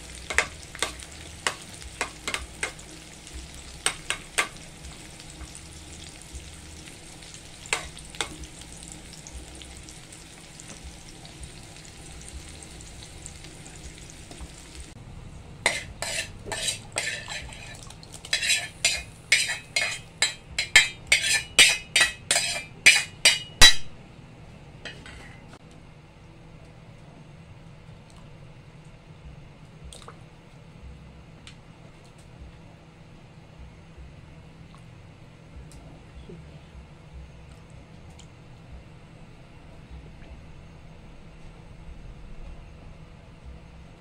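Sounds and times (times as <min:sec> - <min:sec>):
vegetables sizzling in oil: 0:00.0 - 0:15.0, 0:15.6 - 0:23.8
spoon scraping pan: 0:15.6 - 0:23.8
metal spoon clinking against pan: 0:15.7 - 0:23.9.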